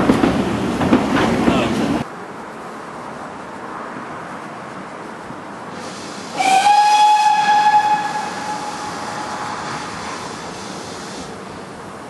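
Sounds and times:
steady hiss: 1.6 - 12.0
steam locomotive whistle: 5.8 - 11.3.

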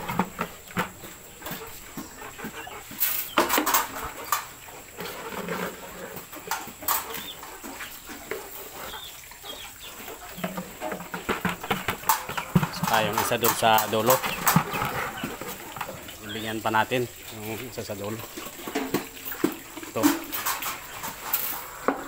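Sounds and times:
piglets grunting and squealing: 1.2 - 10.8, 11.9 - 17.3.

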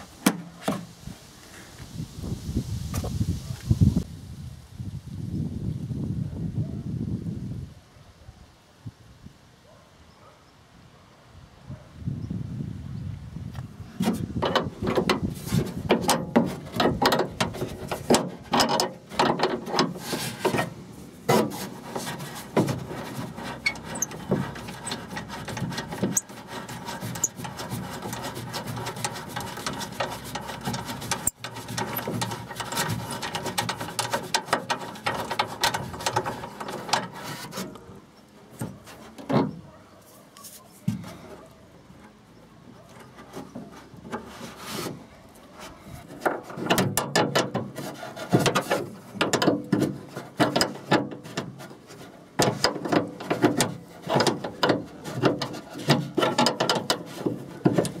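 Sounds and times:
metal and plastic scraping: 0.0 - 1.0, 13.9 - 58.0.

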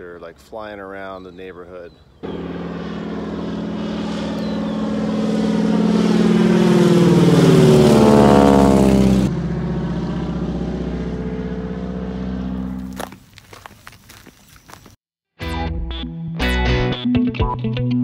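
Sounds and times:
propeller plane engine overhead: 0.9 - 13.3.

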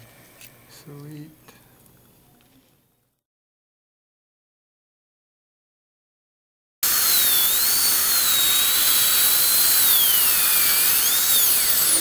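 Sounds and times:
dental drill whining: 6.8 - 12.0.

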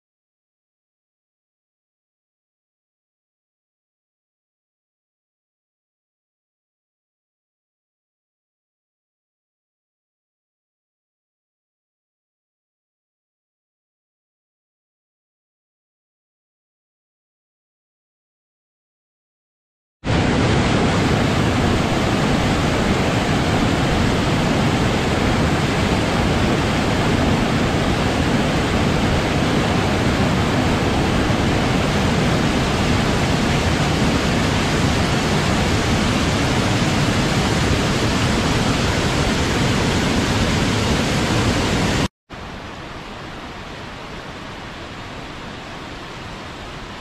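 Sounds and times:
waterfall rushing: 20.1 - 47.0.

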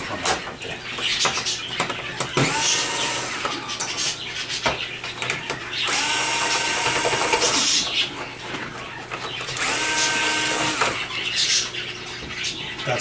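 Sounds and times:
cordless drill spinning: 5.9 - 7.7, 9.6 - 11.0
drill click: 5.9 - 7.7, 9.6 - 11.0.

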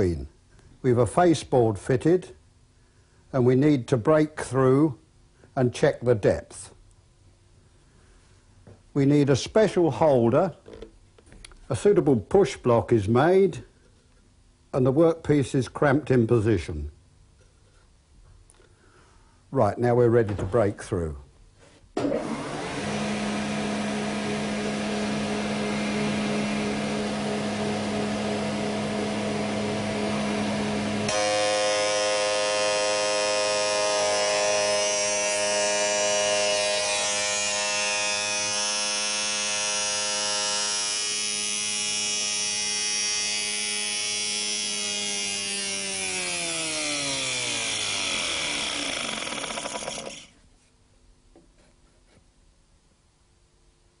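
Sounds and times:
machine winding down: 22.0 - 50.4
spindle moulder humming and whining: 22.2 - 50.2.

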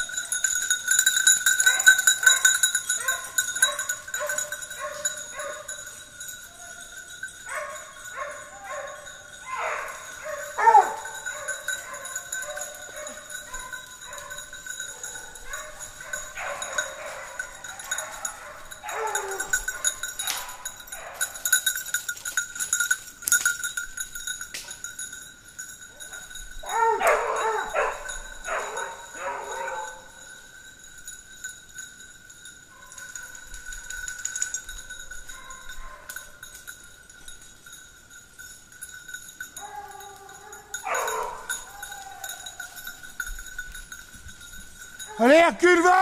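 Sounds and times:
collar bell ringing: 0.0 - 46.0
distant hounds baying: 1.4 - 21.7, 25.9 - 30.4, 32.8 - 34.4, 35.3 - 36.4, 39.6 - 43.2.

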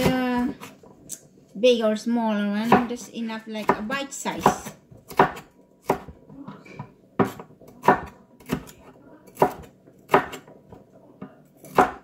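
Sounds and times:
cleaver chopping on wooden board: 3.7 - 6.2, 7.2 - 8.8, 9.4 - 10.5, 11.6 - 12.0.

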